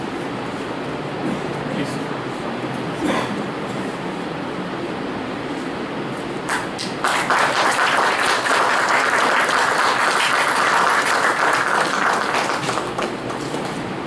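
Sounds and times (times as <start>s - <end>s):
audience applauding: 6.5s - 13.5s.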